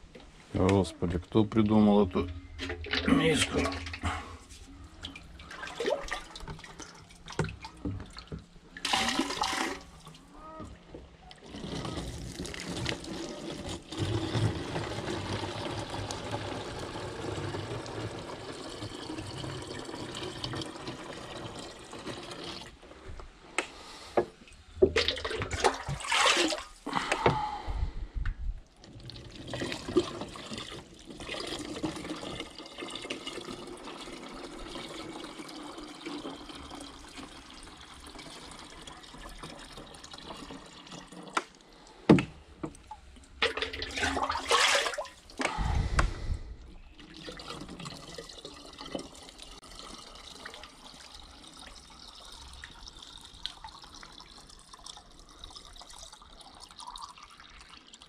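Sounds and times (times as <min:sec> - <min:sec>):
water running and splashing: 0:43.4 - 0:45.6.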